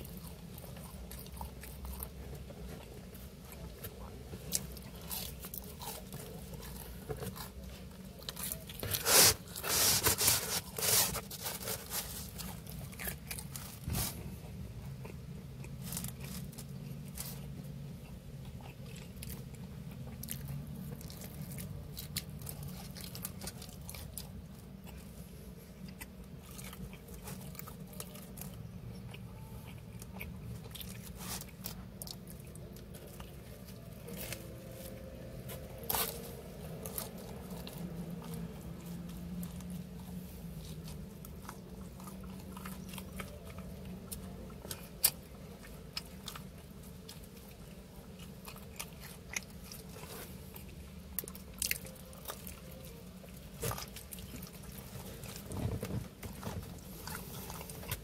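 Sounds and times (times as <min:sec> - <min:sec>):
chewing and biting pizza: 0:00.0 - 0:58.0
steady low hum: 0:00.0 - 0:58.0.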